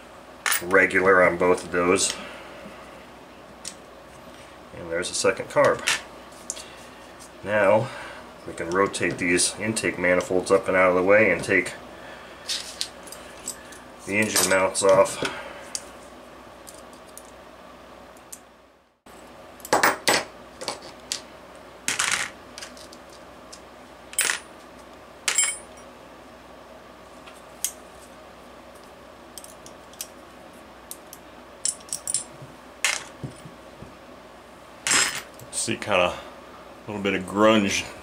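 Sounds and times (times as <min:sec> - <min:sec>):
metal parts clinking: 0:25.3 - 0:25.8, 0:31.6 - 0:32.3.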